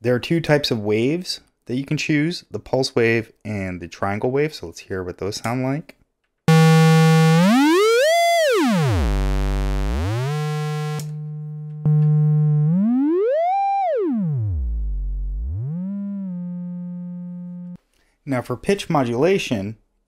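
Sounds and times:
synthesizer note with gliding pitch: 6.5s - 17.8s.

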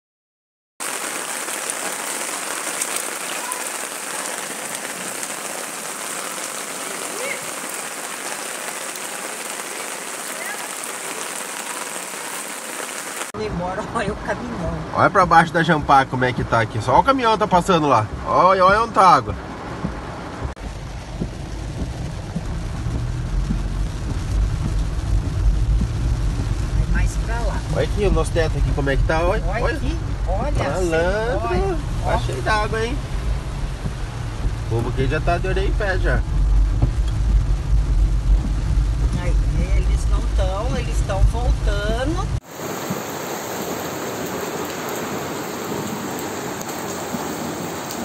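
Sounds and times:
raindrops ticking: 0.8s - 13.9s, 16.8s - 48.0s
engine and tyres on wet road: 0.8s - 48.0s
heavy rain pouring: 0.8s - 48.0s.

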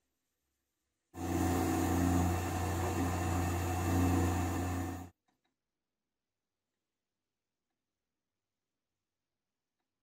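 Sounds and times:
wood lathe humming: 1.2s - 5.1s.

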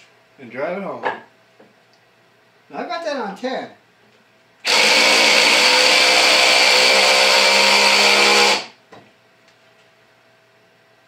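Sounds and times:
cordless drill driving screw: 4.6s - 8.7s.

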